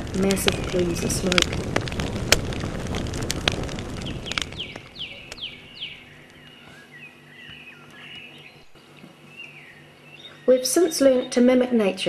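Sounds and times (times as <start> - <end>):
bonfire crackling and popping: 0.0 - 6.6
noisy rush: 0.0 - 6.6
songbird whistles and warbling: 4.6 - 11.4.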